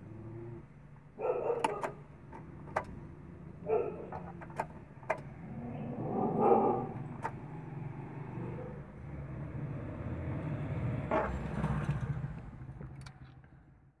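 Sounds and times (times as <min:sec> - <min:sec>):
van engine idling: 0:00.0 - 0:10.1.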